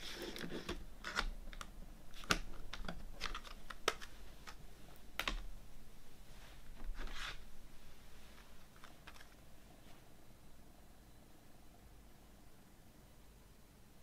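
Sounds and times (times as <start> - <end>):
plastic cases clicking: 0.5 - 4.6.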